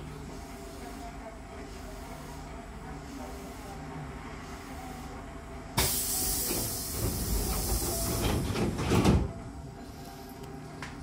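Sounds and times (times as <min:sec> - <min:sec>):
air hiss of train doors: 0:05.8 - 0:10.4.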